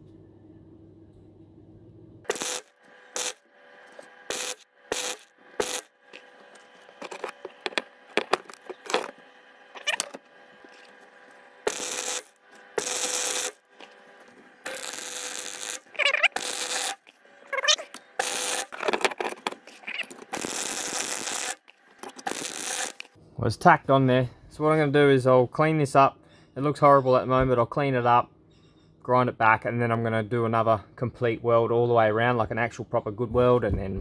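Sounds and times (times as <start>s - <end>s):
welder arc crackling: 2.2s - 23.2s.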